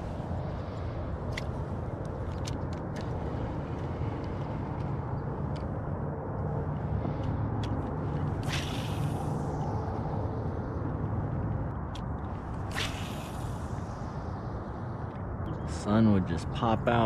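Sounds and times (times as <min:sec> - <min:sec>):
fishing line hissing off spool: 0:08.4 - 0:10.1, 0:12.6 - 0:14.4.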